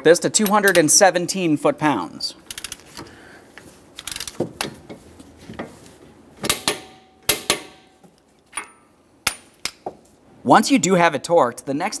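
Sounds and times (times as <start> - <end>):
torque wrench clicks: 2.5 - 2.8, 4.0 - 4.4.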